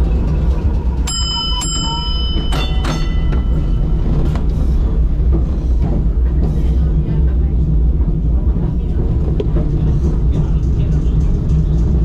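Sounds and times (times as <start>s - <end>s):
tram running rumble: 0.0s - 12.0s
tram gong struck: 1.0s - 4.2s.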